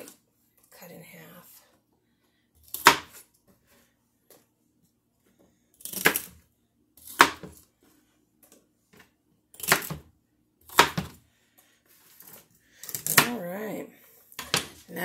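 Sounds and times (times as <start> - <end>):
knife chopping on a cutting board: 2.7 - 3.2, 7.0 - 7.6, 9.6 - 10.1, 10.7 - 11.2.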